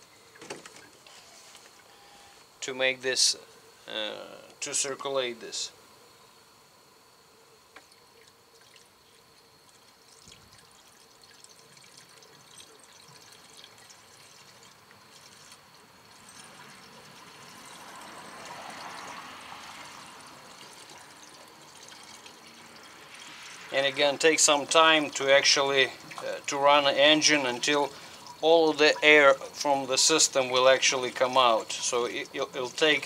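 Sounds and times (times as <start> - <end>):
liquid pouring into plastic tank: 7.8 - 29.4.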